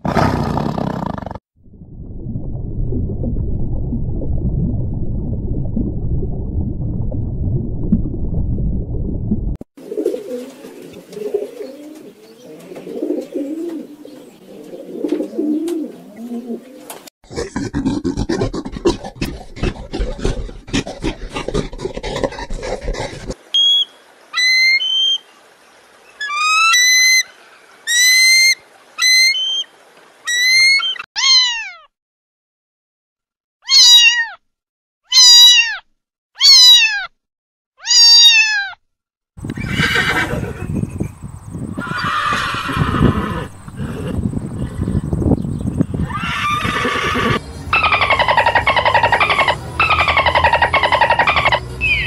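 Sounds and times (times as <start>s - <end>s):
gorilla vocalising: 17.3s - 23.4s, 46.0s - 52.0s
horse vocalising: 17.3s - 23.4s, 39.5s - 41.0s, 41.8s - 45.1s, 46.0s - 51.6s
cat meowing: 31.2s - 31.9s, 33.6s - 34.4s, 35.1s - 35.8s, 36.4s - 37.1s, 37.8s - 38.8s.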